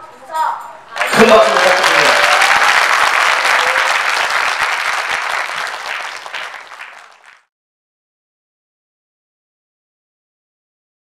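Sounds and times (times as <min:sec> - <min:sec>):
audience applauding: 0:01.0 - 0:07.5.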